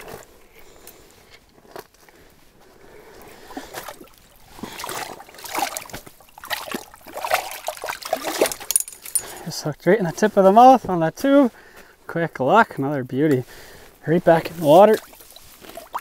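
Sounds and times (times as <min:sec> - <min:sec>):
water sloshing and splashing: 0:03.2 - 0:09.4, 0:14.5 - 0:16.0.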